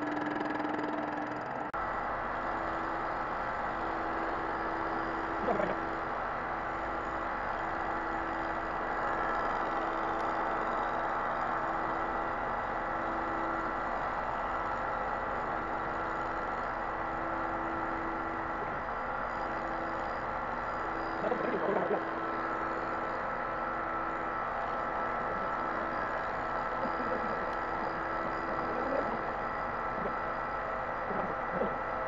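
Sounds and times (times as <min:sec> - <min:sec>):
machine tool cutting metal: 0:00.0 - 0:01.7.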